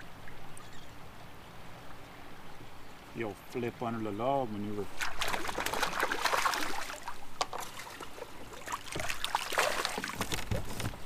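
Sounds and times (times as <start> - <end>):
fish splashing in water: 4.9 - 10.6.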